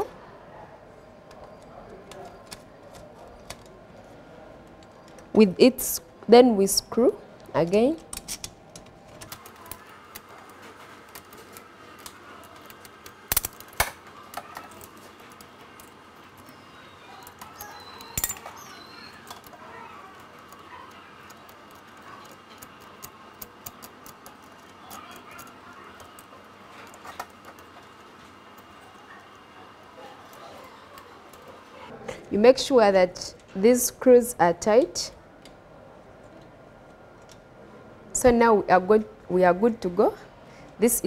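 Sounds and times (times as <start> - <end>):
metal parts clicking and tapping: 7.4 - 29.0.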